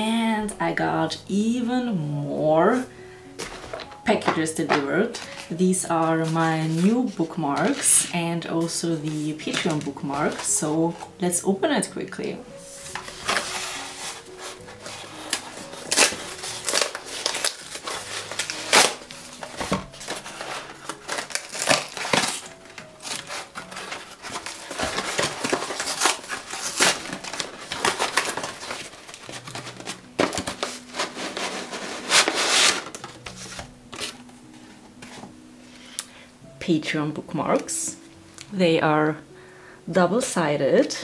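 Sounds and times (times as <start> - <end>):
soft background music: 0.0 - 41.0
paper packaging tearing and rustling: 5.0 - 11.2, 12.6 - 35.4.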